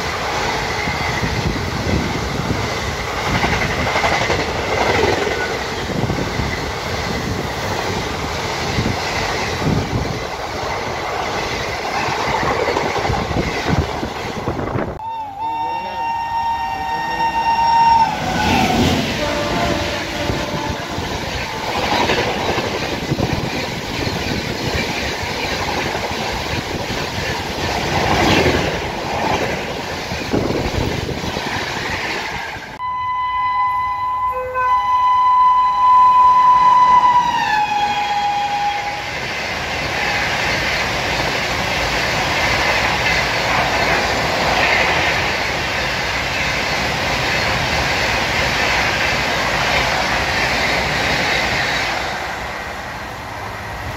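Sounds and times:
train cars rushing by: 0:00.0 - 0:32.8, 0:35.4 - 0:53.9
train passing at speed: 0:00.0 - 0:53.9
locomotive air horn: 0:15.0 - 0:22.1, 0:32.8 - 0:39.2.

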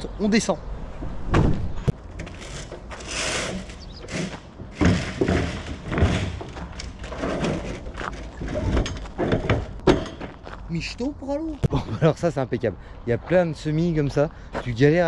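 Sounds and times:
heavy thumps and knocks: 0:01.0 - 0:02.3, 0:04.1 - 0:10.5
scraping rush: 0:02.1 - 0:09.8.

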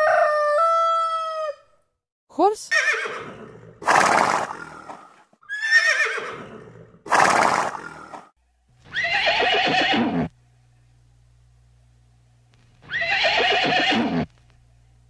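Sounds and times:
horse neighing: 0:02.7 - 0:04.8, 0:05.4 - 0:08.1, 0:08.9 - 0:10.3, 0:12.9 - 0:14.3.

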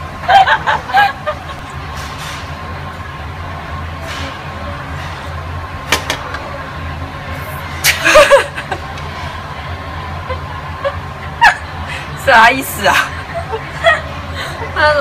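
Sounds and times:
restaurant dining room hum: 0:00.0 - 0:15.0
person laughing: 0:00.2 - 0:01.8, 0:07.9 - 0:08.9.

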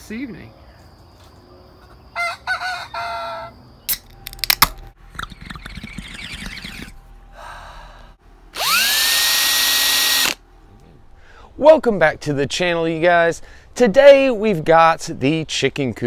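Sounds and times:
rooster crowing: 0:02.0 - 0:03.6
drink can snapping open: 0:03.9 - 0:05.3
cordless drill whine: 0:08.6 - 0:10.4.

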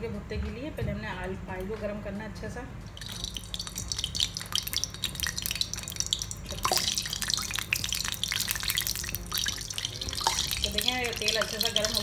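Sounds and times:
oil crackling and popping: 0:02.9 - 0:12.0.

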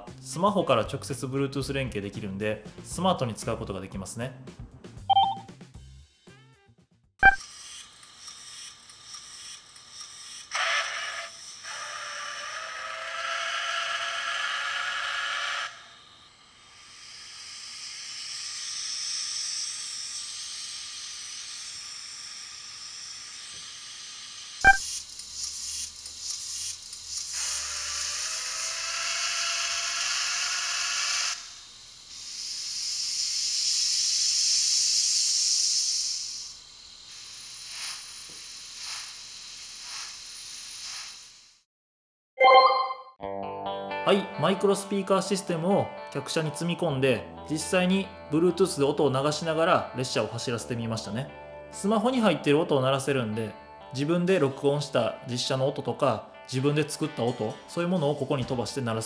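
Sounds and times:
steam hiss: 0:07.4 - 0:41.7.

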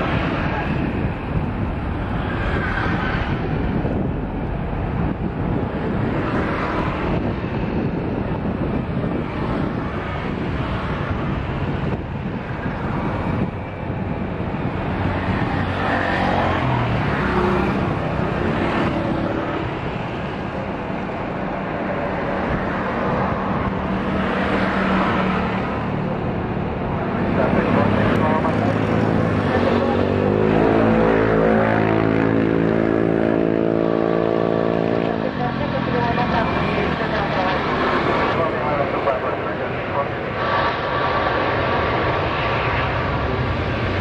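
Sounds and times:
jet engines at takeoff: 0:00.0 - 0:44.0.

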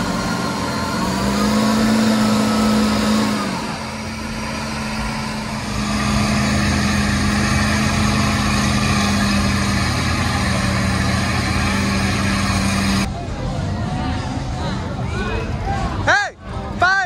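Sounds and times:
truck engine running: 0:00.0 - 0:14.8.

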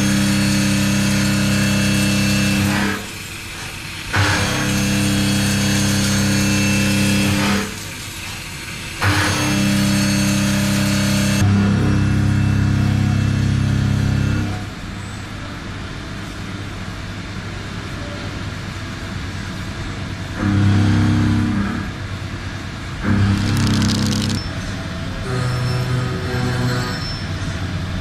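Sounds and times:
machine hum: 0:23.0 - 0:25.6.

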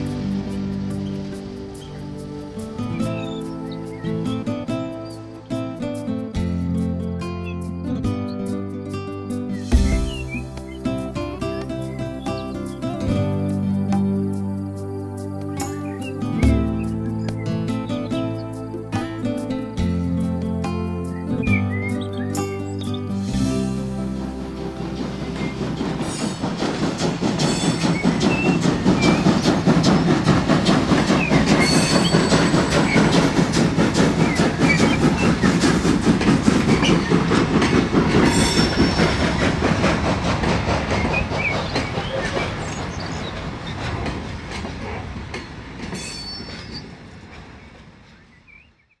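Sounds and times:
train wheels clattering: 0:21.5 - 0:48.4
wheel squeals: 0:31.1 - 0:35.8, 0:36.6 - 0:43.9, 0:45.9 - 0:47.0.

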